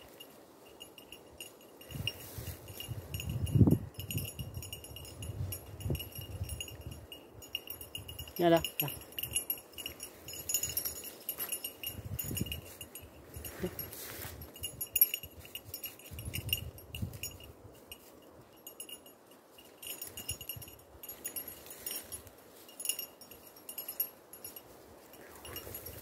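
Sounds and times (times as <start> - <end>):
dog collar bell jingling: 0.0 - 26.0.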